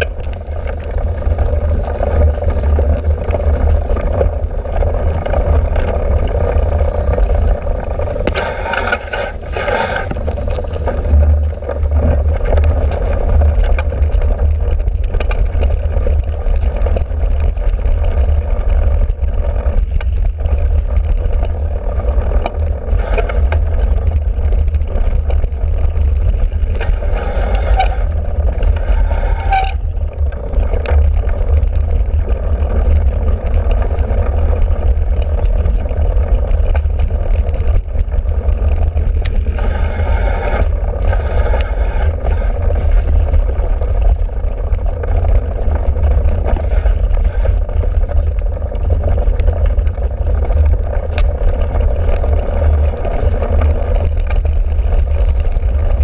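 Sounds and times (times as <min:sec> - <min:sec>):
bike knocks and rattles: 0:00.0 - 0:39.5
wind buffeting on camera: 0:00.0 - 0:56.0.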